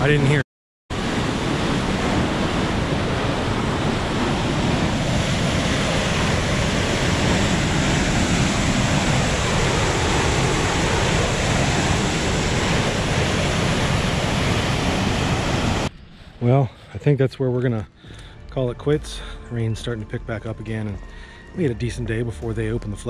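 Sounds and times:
water rushing through spillway: 1.0 - 15.9.

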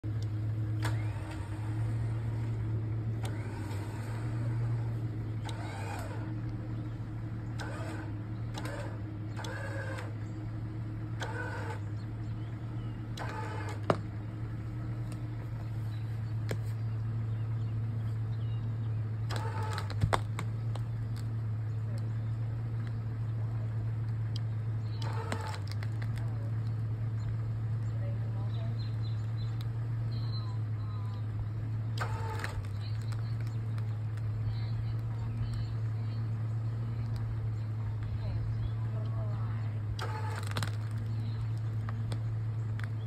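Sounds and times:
electric winch motor drone: 0.1 - 16.0, 18.4 - 20.0, 23.5 - 27.2, 28.9 - 34.3, 39.9 - 41.0
wood creaking: 19.2 - 22.0
stump snapping: 19.3 - 21.3.

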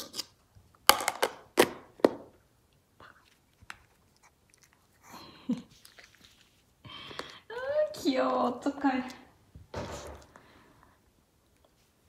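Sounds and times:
dog chewing and crunching: 3.2 - 6.7.

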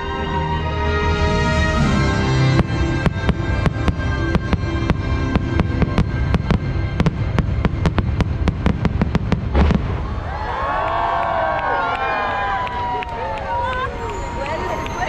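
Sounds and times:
orchestral music: 0.0 - 10.2
fireworks bangs: 2.3 - 11.6.

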